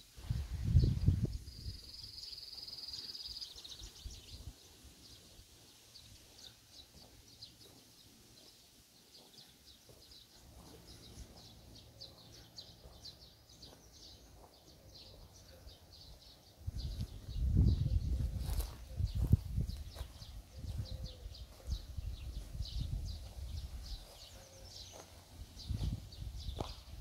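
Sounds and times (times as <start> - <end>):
small birds chirping: 0.0 - 27.0.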